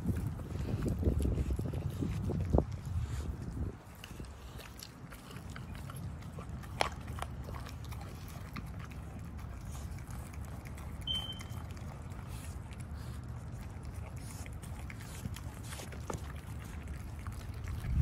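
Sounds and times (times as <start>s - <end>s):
wind rumble on microphone: 0.0s - 4.7s, 17.3s - 18.0s
dogs licking scraps: 0.0s - 18.0s
high squeak: 11.1s - 11.5s.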